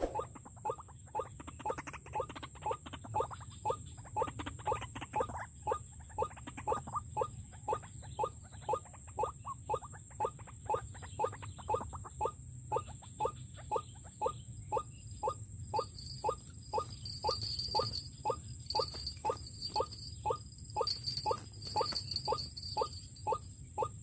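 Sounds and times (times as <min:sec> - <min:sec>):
waterhen calls: 0:00.0 - 0:00.4, 0:15.8 - 0:23.9.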